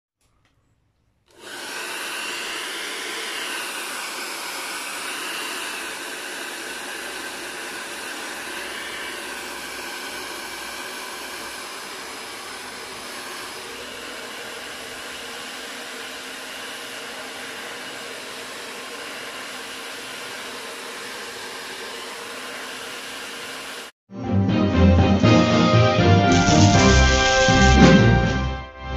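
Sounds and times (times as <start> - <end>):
hair dryer blowing: 1.3 - 24.0.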